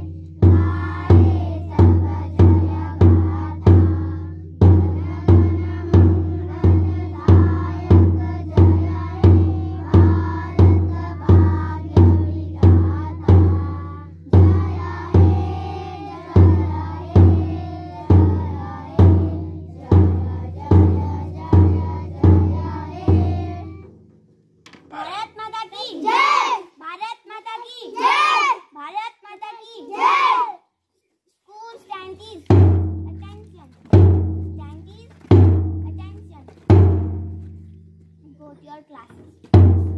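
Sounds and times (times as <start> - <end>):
children singing: 0.0 - 23.9
bass drum booming: 0.0 - 24.2, 32.5 - 33.3, 34.0 - 34.7, 35.3 - 36.0, 36.7 - 38.0, 39.6 - 39.9.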